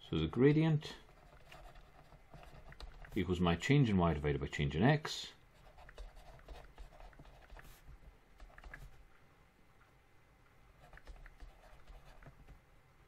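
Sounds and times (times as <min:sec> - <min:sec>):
pen writing: 0:01.1 - 0:03.2, 0:05.6 - 0:09.0, 0:10.8 - 0:12.5.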